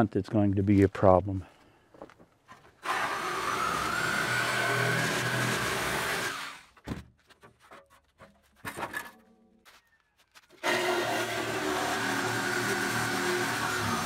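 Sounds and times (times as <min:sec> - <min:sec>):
reciprocating saw cutting steel: 0:10.6 - 0:14.0.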